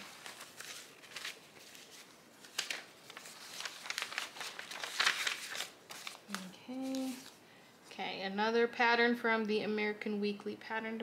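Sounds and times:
paper crinkling and rustling: 0:00.0 - 0:07.4.

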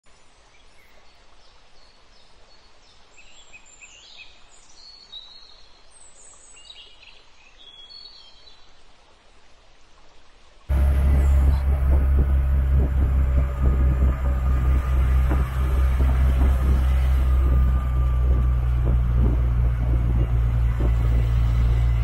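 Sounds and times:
loud bass-heavy sound: 0:10.7 - 0:22.0.

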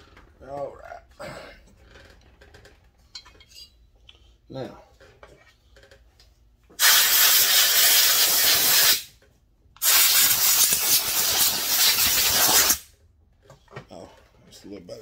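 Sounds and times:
compressed air blow gun hissing: 0:06.8 - 0:09.1, 0:09.8 - 0:12.8.

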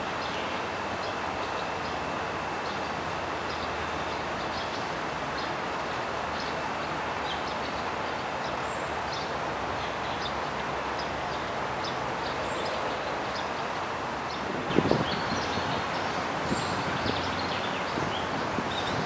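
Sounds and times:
steady outdoor rushing noise: 0:00.0 - 0:19.0
small birds chirping: 0:14.3 - 0:19.0.

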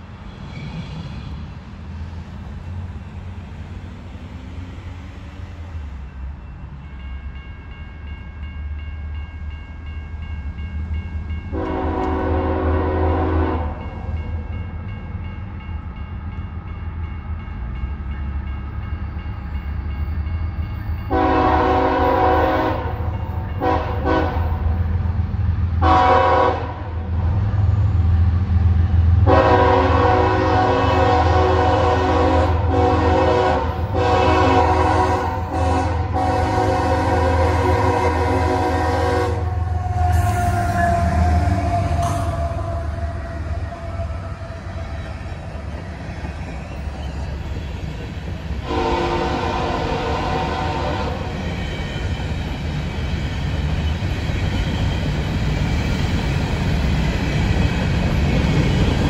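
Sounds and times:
train rumbling past: 0:00.0 - 0:59.0
locomotive air horn: 0:11.5 - 0:13.8, 0:21.1 - 0:24.7, 0:25.8 - 0:27.0, 0:29.2 - 0:45.0, 0:48.6 - 0:51.3.

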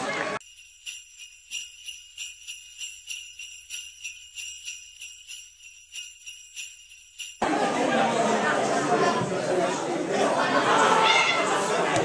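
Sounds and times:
sleigh bells shaken: 0:00.4 - 0:07.4.

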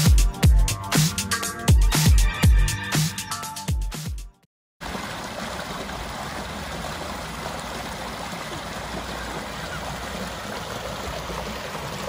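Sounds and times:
water splashing over rocks: 0:04.8 - 0:12.0.

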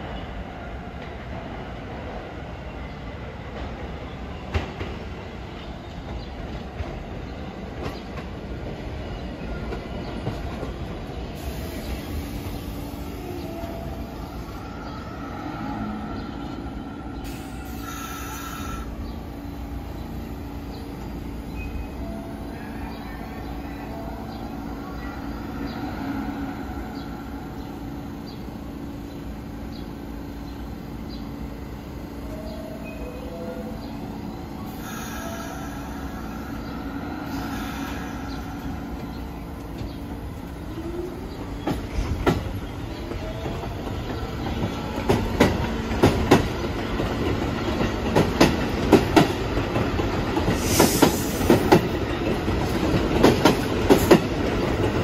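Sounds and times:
subway train wheels rumbling on rail: 0:00.0 - 0:55.0.

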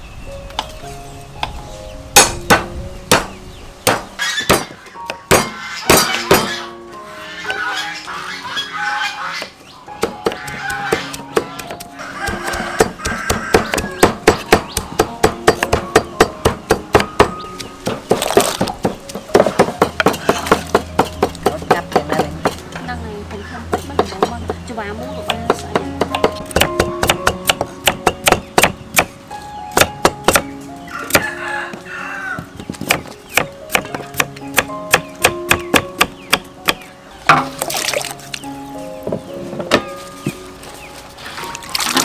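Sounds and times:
background music: 0:00.0 - 0:42.0
knife chopping on wooden block: 0:10.0 - 0:22.6, 0:25.3 - 0:29.1, 0:32.6 - 0:37.5.

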